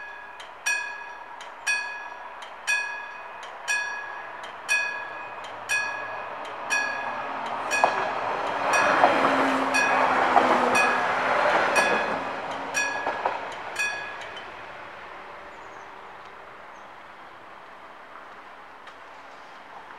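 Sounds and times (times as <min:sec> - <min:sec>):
level crossing bells ringing: 0:00.0 - 0:14.6
train wheels clicking: 0:00.0 - 0:14.7.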